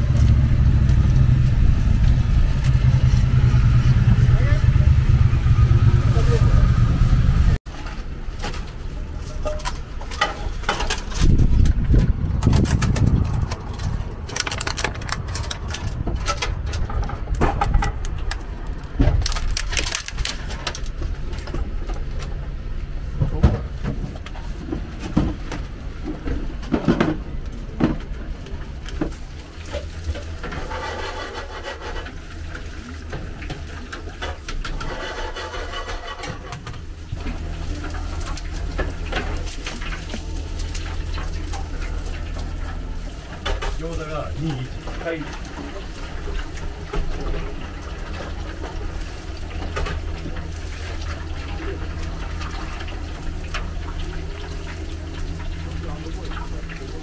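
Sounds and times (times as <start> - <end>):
heavy low rumble: 0.0 - 57.0
oil sizzling in deep fryer: 28.8 - 57.0.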